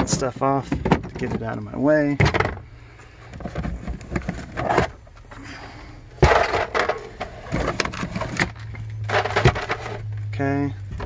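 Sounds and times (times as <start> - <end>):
plastic case knocks and clunks: 0.0 - 2.7.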